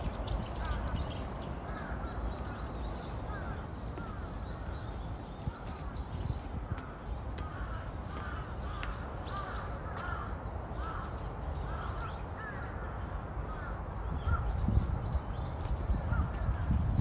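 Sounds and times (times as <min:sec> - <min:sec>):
crows cawing: 0:01.7 - 0:02.6, 0:03.3 - 0:04.4, 0:06.6 - 0:14.5.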